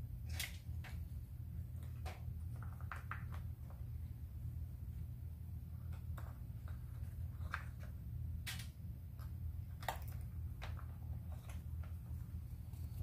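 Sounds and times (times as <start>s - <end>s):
steady low hum: 0.0s - 13.0s
small parts clicking and tapping: 5.8s - 12.1s.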